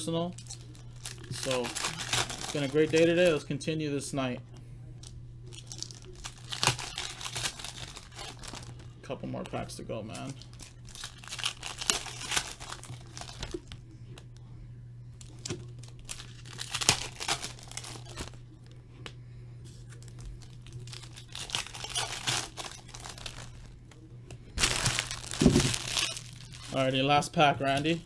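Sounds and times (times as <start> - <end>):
plastic wrapper crinkling and tearing: 0.3 - 3.4, 5.0 - 13.8, 15.2 - 18.8, 19.7 - 24.0, 24.6 - 27.1.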